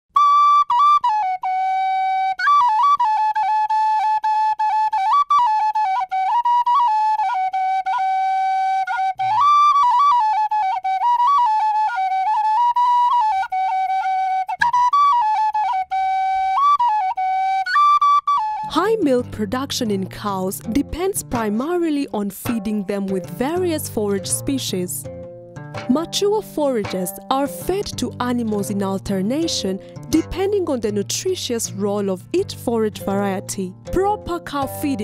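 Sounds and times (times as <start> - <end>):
solo flute melody: 0.1 - 18.7.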